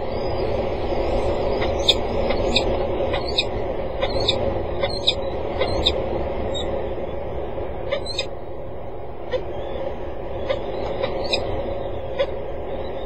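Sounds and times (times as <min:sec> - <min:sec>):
falcon calling: 0:10.4 - 0:11.5.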